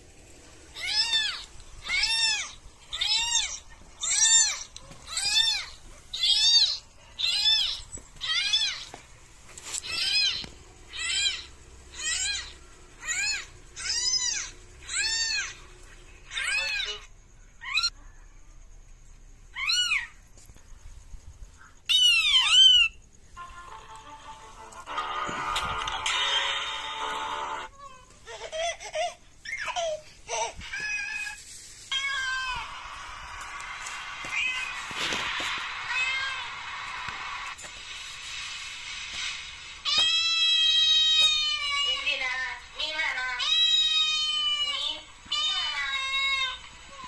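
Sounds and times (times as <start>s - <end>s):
kittens meowing: 0.8s - 8.9s.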